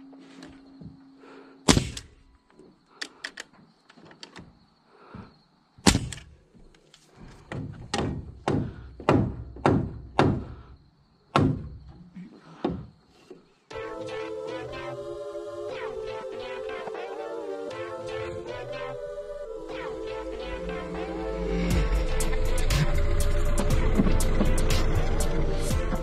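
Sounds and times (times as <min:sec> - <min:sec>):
nail gun shots: 0:01.7 - 0:02.2, 0:05.8 - 0:06.3.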